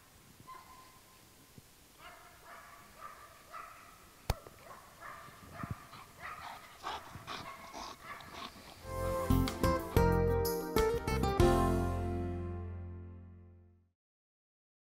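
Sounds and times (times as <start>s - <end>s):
guitar music: 8.8s - 13.6s.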